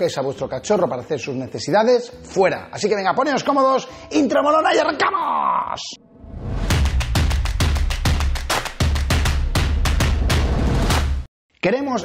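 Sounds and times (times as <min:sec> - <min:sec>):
music with drum beat and deep bass: 0:06.7 - 0:11.2.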